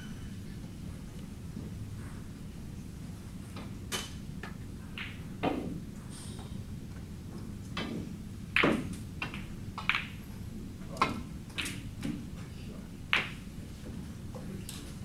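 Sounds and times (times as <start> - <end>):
snooker balls clicking: 4.4 - 5.8, 7.7 - 10.3, 10.9 - 12.2, 13.1 - 15.0
cue striking ball sharp click: 8.6 - 10.2, 13.1 - 13.4.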